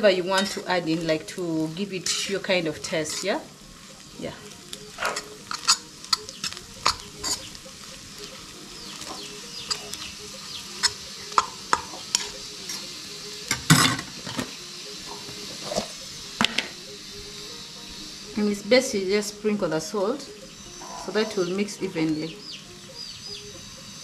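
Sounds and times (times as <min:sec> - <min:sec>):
eggs sizzling: 0:00.0 - 0:24.0
fork scraping frying pan: 0:03.0 - 0:03.4, 0:04.9 - 0:07.6, 0:08.3 - 0:12.9, 0:15.1 - 0:16.0, 0:20.8 - 0:21.5.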